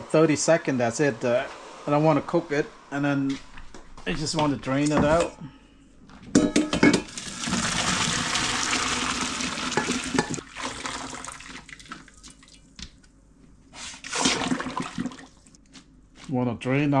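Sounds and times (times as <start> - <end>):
water pouring into colander: 7.1 - 12.6, 14.0 - 15.5.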